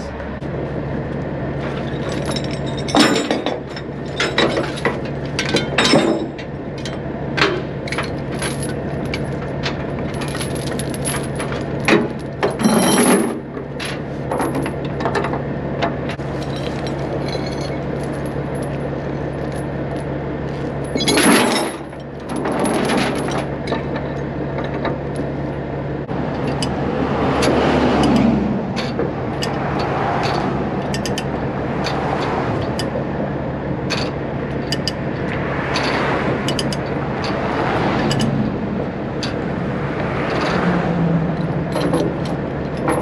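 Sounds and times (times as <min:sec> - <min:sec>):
engine hum: 0:00.0 - 0:43.0
metal chains clinking: 0:01.8 - 0:07.0, 0:07.9 - 0:14.8, 0:16.3 - 0:24.2, 0:28.0 - 0:33.0, 0:33.9 - 0:35.0, 0:35.6 - 0:37.4, 0:40.3 - 0:43.0.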